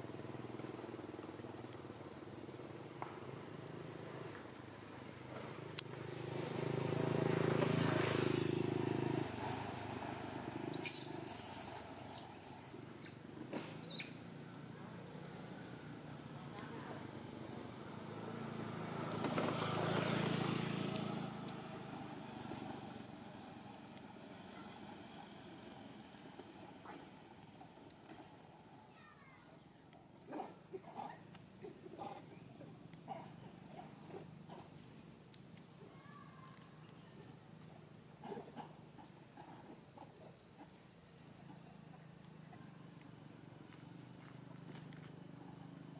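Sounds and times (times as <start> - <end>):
low engine-like hum: 0.0 - 45.9
high-pitched insect drone: 10.4 - 45.9
macaque calls: 10.7 - 13.2, 30.3 - 32.5
faint chirps: 10.7 - 17.5, 22.9 - 45.9.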